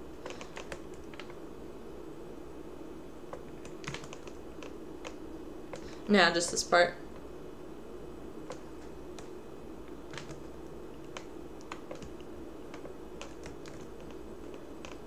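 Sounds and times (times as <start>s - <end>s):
low background hum: 0.0s - 15.0s
computer keyboard keystrokes: 0.2s - 1.4s, 3.6s - 5.9s, 10.1s - 15.0s.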